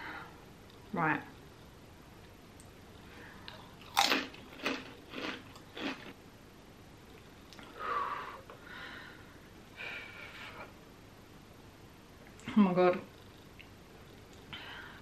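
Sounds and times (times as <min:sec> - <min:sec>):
chip crunching: 0:03.5 - 0:06.2.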